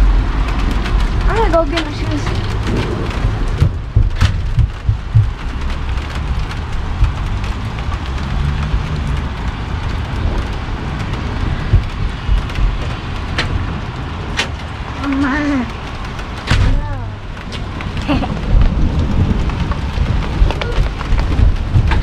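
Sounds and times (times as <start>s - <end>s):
low rumble: 0.0s - 22.0s
rain falling: 0.0s - 22.0s
sharp ticks: 0.7s - 13.6s.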